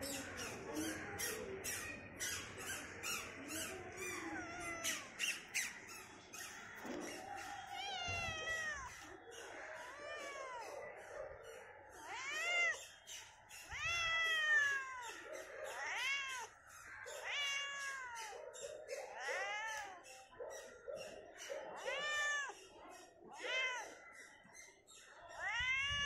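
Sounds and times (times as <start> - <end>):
cat meowing: 3.9 - 5.4, 7.6 - 10.7, 12.0 - 12.8, 13.7 - 16.5, 17.1 - 18.4, 19.1 - 20.0, 21.8 - 22.6, 23.4 - 24.0, 25.4 - 26.0.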